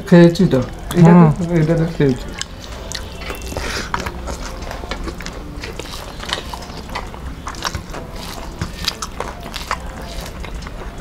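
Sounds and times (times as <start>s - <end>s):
chewing and lip-smacking: 0.5s - 11.0s
fingers squishing rice: 2.3s - 11.0s.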